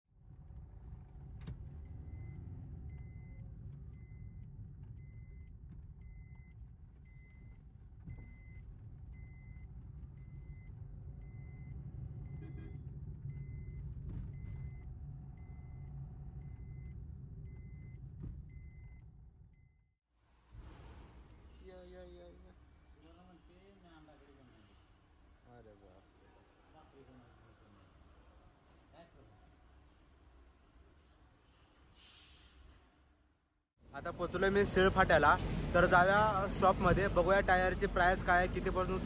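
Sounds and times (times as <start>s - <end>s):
car road and engine rumble: 0.2s - 19.6s, 33.9s - 39.0s.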